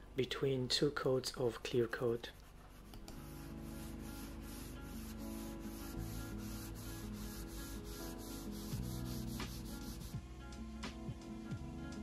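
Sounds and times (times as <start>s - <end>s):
sanding sponge rubbing: 2.4s - 10.2s
background music with held chords: 2.9s - 12.0s.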